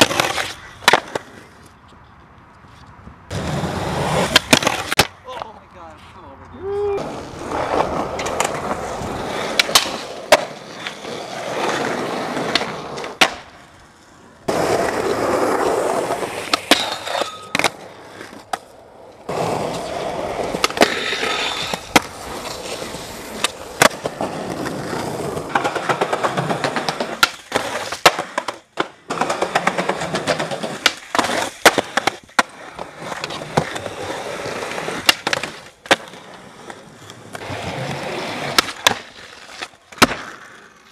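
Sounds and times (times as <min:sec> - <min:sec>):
skateboard pops and landing slaps: 0:00.0 - 0:01.5, 0:03.3 - 0:05.6, 0:09.4 - 0:11.0, 0:12.4 - 0:13.6, 0:14.5 - 0:18.7, 0:20.5 - 0:33.9, 0:34.9 - 0:40.9
skateboard trucks grinding on curb: 0:00.0 - 0:01.7, 0:03.3 - 0:05.1, 0:06.9 - 0:40.9
skateboard wheels rolling on concrete: 0:00.0 - 0:40.9.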